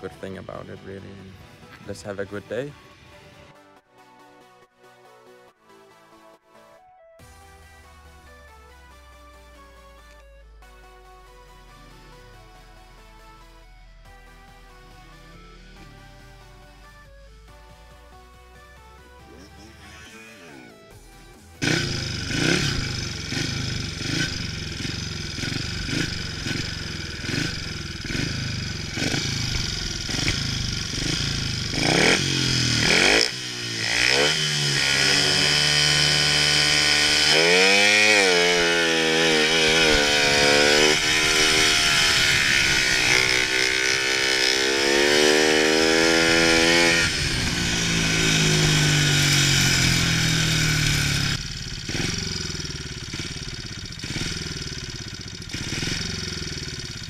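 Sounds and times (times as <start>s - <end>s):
motorcycle engine revving: 14.8s - 17.2s, 21.6s - 57.0s.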